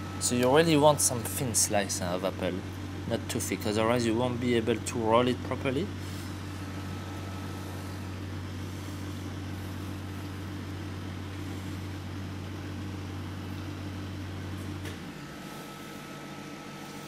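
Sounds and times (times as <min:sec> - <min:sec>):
low kitchen machine hum: 0:00.0 - 0:17.0.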